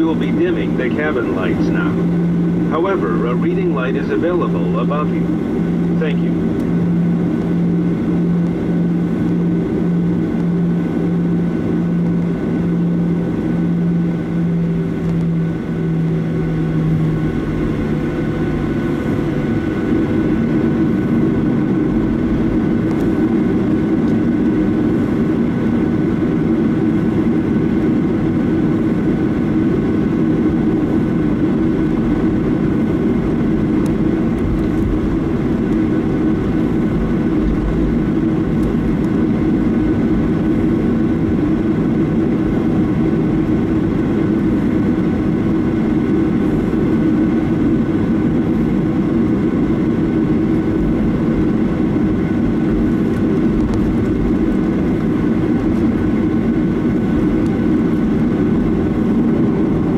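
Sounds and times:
jet engine cabin noise: 0.0 - 59.9
low pulsing hum: 0.0 - 59.9.

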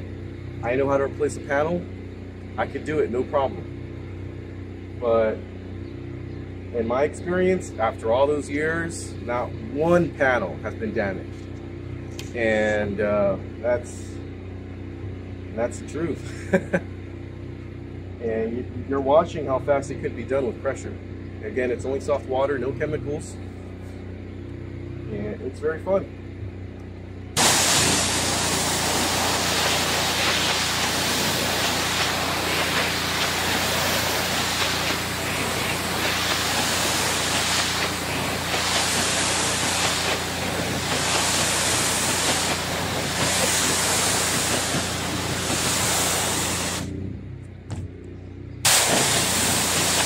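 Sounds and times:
steady low hum: 0.0 - 50.0
pressure washer jet hissing: 27.4 - 46.9, 48.6 - 50.0.

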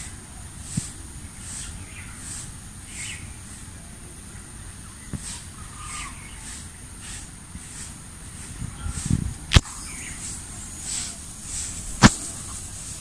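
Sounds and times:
sharp click: 9.5 - 9.7.

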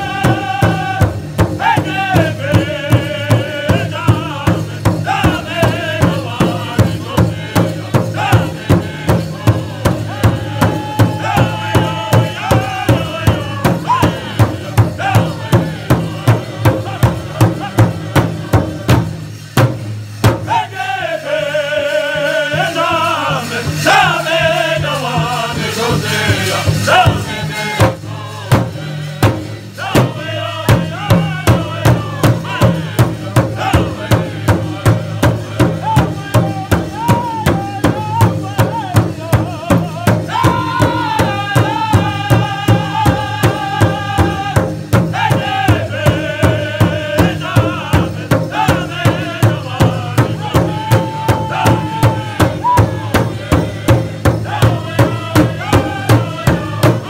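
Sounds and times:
large drum beating: 0.0 - 20.7, 22.6 - 57.0
group singing high voices: 0.0 - 57.0.

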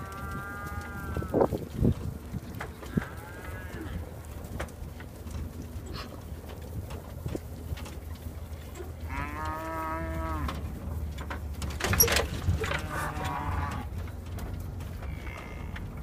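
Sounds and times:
cattle mooing: 0.0 - 1.6, 2.7 - 4.1, 8.8 - 10.8, 12.5 - 14.0, 14.9 - 16.0.

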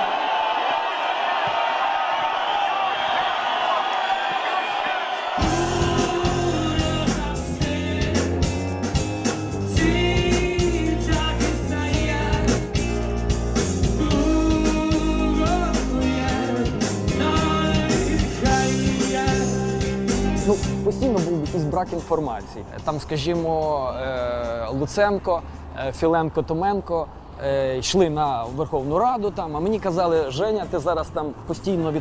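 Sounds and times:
rock song with singing: 5.4 - 20.8.

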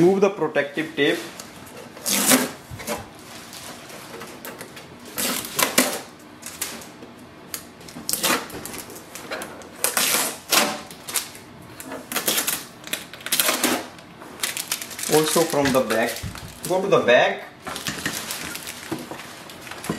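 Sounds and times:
tape ripping off plastic: 2.0 - 2.6, 7.5 - 11.4, 12.1 - 16.8.

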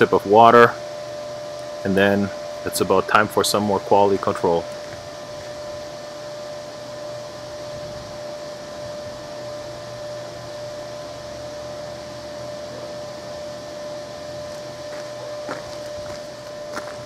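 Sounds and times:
low hum: 0.0 - 17.0
shop machinery whirring: 0.0 - 17.0.

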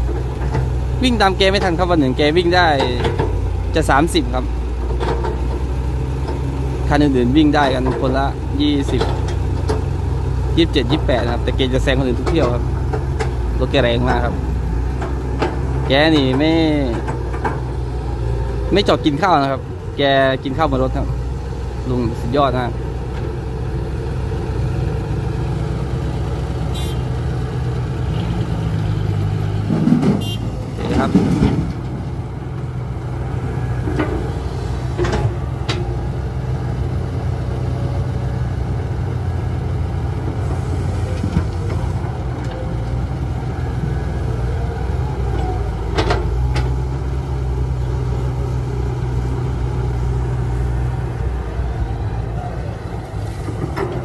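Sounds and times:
diesel engines running: 0.0 - 54.0
sharp knocks and clatters: 2.8 - 3.5, 4.8 - 6.4, 14.9 - 17.8, 29.6 - 32.0, 33.8 - 36.0
soil loading into truck: 29.1 - 32.5.

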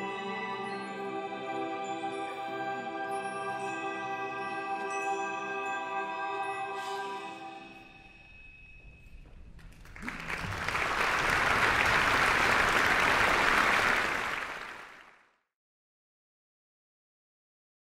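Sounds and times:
orchestra and choir chord: 0.0 - 7.7
audience applause: 9.7 - 15.3.

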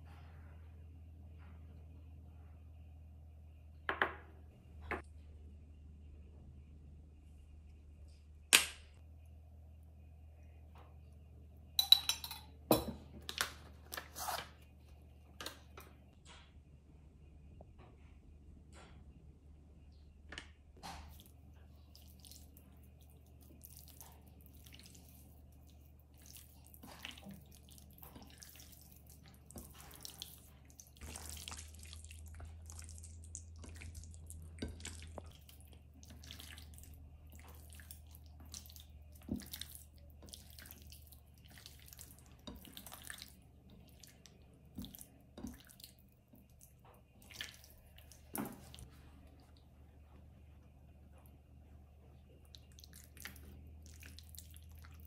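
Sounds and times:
low steady hum: 0.0 - 55.0
wet meat squelching: 21.1 - 48.9, 52.5 - 55.0.

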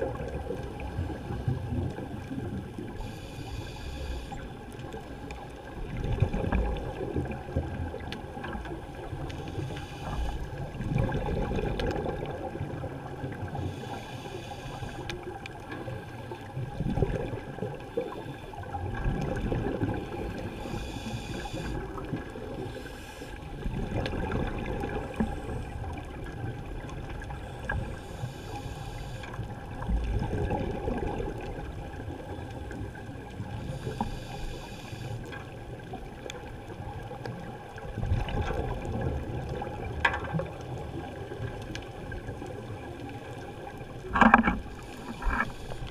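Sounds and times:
exhaled air bubbling underwater: 0.0 - 45.9
regulator hiss on inhalation: 3.0 - 4.4, 13.7 - 15.1, 20.6 - 21.8, 28.0 - 29.4, 33.6 - 35.2.

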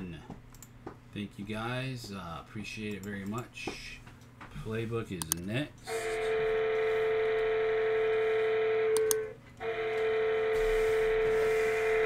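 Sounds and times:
electronic buzzer tone: 5.9 - 12.0.

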